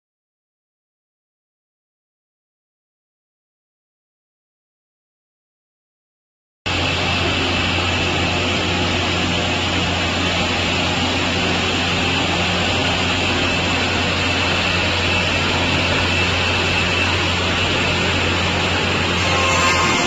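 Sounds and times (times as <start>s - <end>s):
rip saw machine drone: 6.7s - 20.0s.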